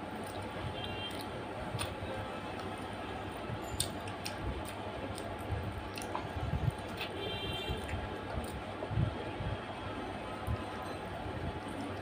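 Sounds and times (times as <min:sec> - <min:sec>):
wet chewing clicks and smacks: 0:00.0 - 0:03.0, 0:03.7 - 0:08.6
steady background noise: 0:00.0 - 0:12.0.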